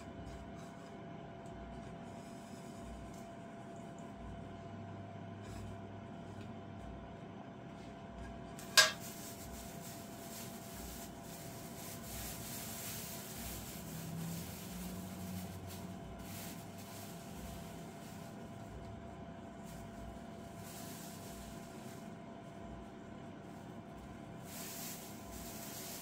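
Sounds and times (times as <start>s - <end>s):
plastic bag crinkling: 8.6s - 18.7s, 24.4s - 26.0s
plate set down clack: 8.7s - 9.0s.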